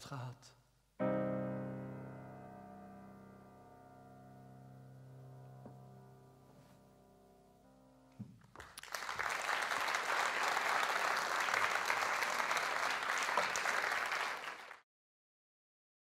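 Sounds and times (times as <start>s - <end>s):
piano chord: 1.0s - 8.2s
audience applause: 8.5s - 14.8s.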